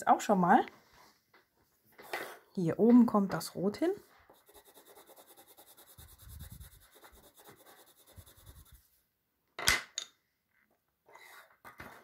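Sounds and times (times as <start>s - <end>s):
pencil scratching on paper: 4.3s - 8.9s.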